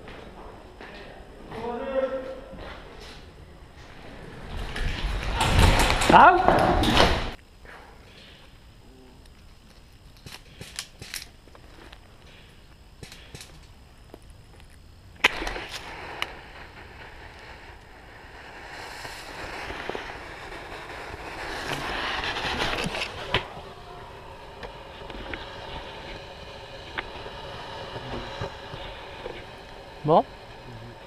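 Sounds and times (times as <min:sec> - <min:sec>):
smoke grenade hissing: 0:09.3 - 0:31.0
sharp crack: 0:12.9 - 0:31.0.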